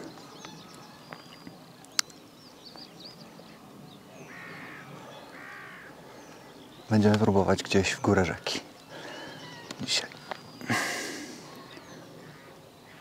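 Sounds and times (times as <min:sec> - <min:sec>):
small birds chirping: 0:00.0 - 0:13.0
crow cawing: 0:04.2 - 0:06.0, 0:11.4 - 0:13.0.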